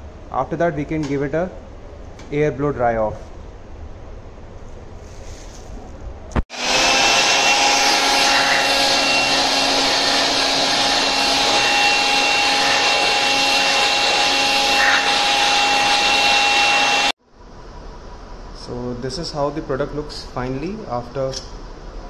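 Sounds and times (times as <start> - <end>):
electric air blower running: 6.5 - 17.2.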